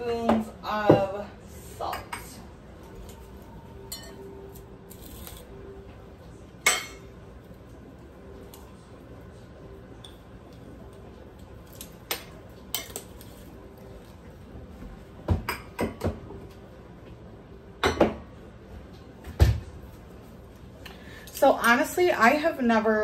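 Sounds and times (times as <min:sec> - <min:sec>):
kitchen utensils and dishes clinking: 0:01.8 - 0:05.5, 0:06.6 - 0:07.1, 0:11.6 - 0:13.6.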